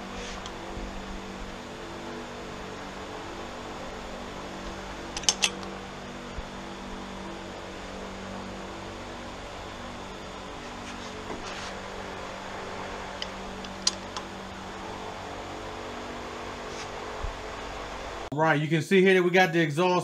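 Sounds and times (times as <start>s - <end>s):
steady background hum: 0.0s - 20.0s
torque wrench clicks: 5.2s - 5.6s.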